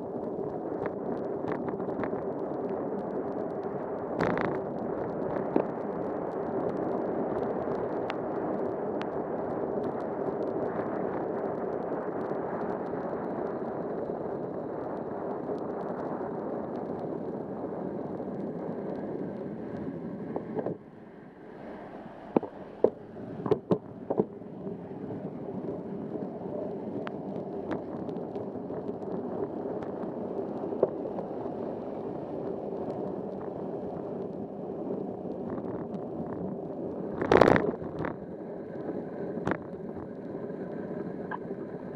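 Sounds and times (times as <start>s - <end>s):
rain: 0.0s - 41.9s
wind on camera: 0.0s - 41.9s.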